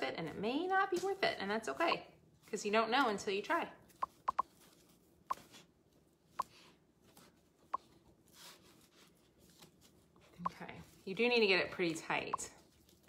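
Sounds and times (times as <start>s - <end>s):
sharp clicks: 4.0s - 4.4s.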